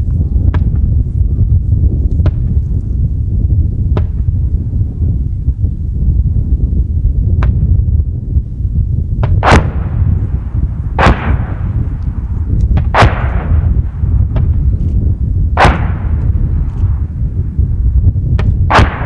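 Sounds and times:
steady low rumble: 0.0s - 19.0s
gunfire and explosions: 9.2s - 17.4s, 18.3s - 19.0s.

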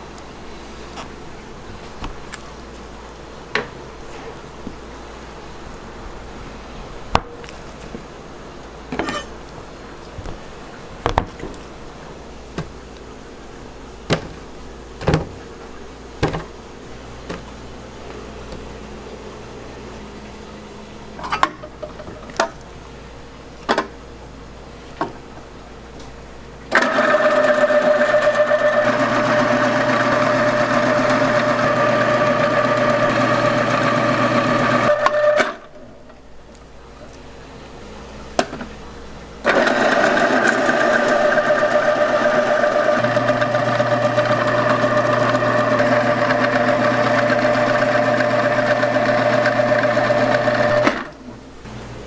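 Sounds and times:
food processor motor whine: 26.7s - 35.6s, 39.4s - 51.1s.

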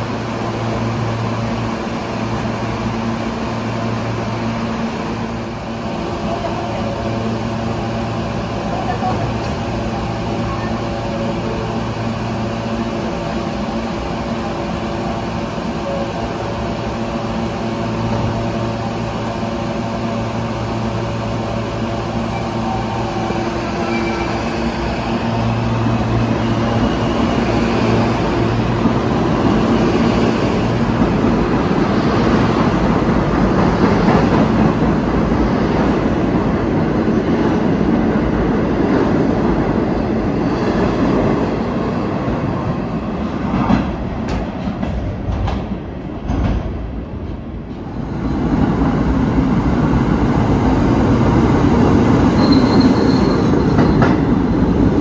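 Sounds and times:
subway train equipment humming: 0.0s - 55.0s
train wheels rumbling and rattling: 0.0s - 55.0s.

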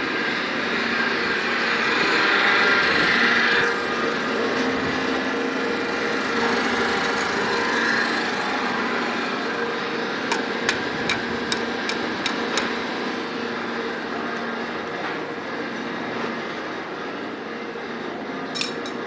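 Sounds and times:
machine motor hum: 0.0s - 19.0s.

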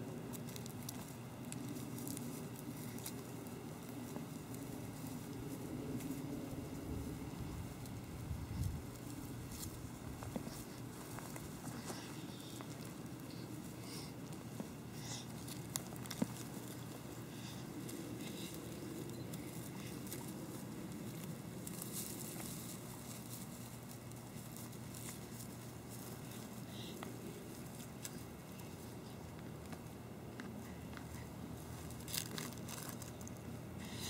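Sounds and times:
low outdoor rumble: 0.0s - 34.0s
rustling in dry grass: 0.0s - 34.0s.

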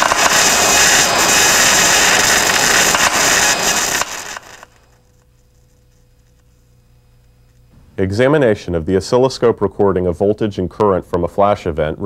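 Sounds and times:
electrical arcing crackling and popping: 0.0s - 7.7s
faint electrical hum: 4.4s - 12.0s.

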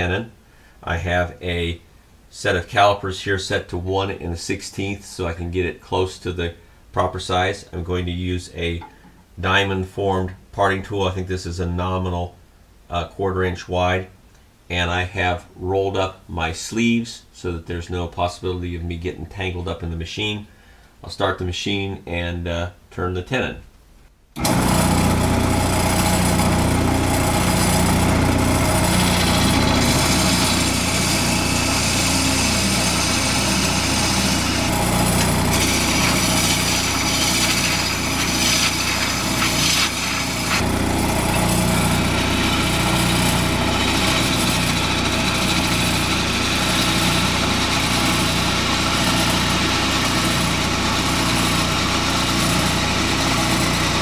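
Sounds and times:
tool cutting spinning wood: 24.4s - 54.0s
wood lathe running: 24.4s - 54.0s.

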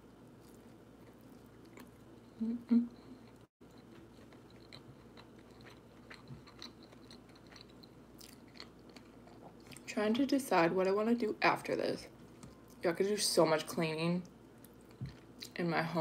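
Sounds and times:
person chewing with wet clicks: 0.4s - 2.4s, 3.2s - 9.8s.

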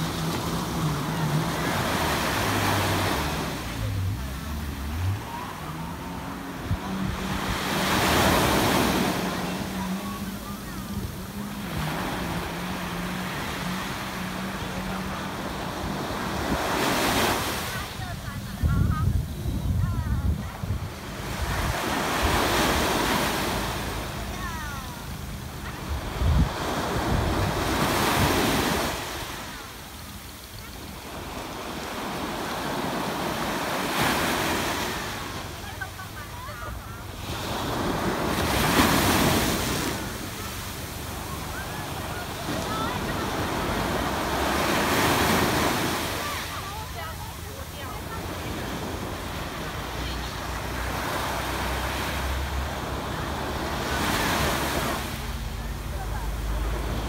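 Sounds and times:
waves breaking on beach: 0.0s - 57.0s
wind buffeting microphone: 18.1s - 21.9s, 25.9s - 28.8s.

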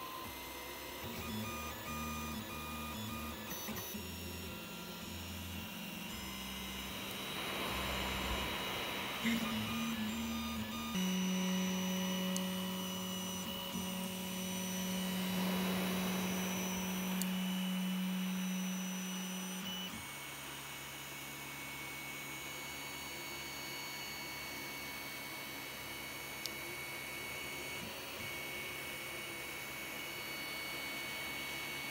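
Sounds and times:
stepper motors whining: 1.2s - 18.4s.

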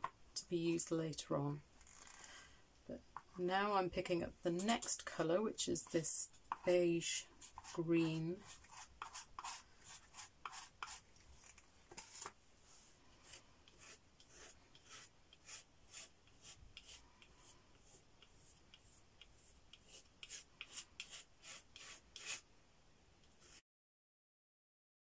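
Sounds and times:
palette knife scraping paint: 4.5s - 22.5s, 23.2s - 23.6s.

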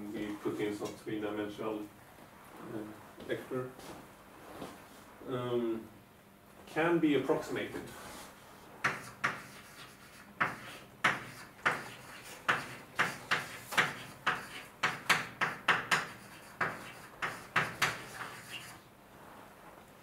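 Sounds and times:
writing strokes on a board: 8.0s - 18.8s.

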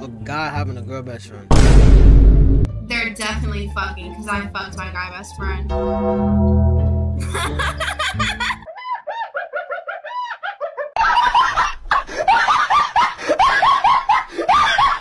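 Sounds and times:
bass-heavy music: 1.5s - 8.6s
people laughing: 7.2s - 15.0s.

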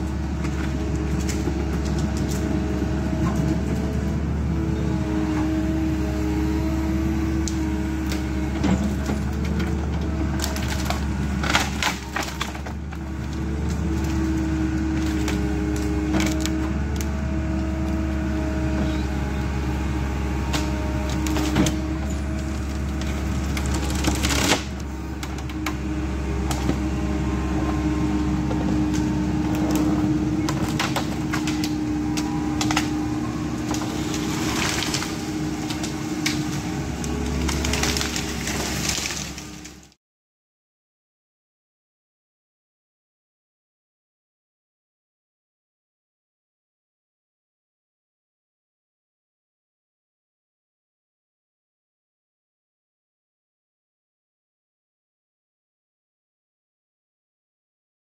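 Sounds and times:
excavator diesel engine: 0.0s - 40.0s
wood cracking and snapping: 8.8s - 17.1s, 20.4s - 27.1s, 28.8s - 40.0s.

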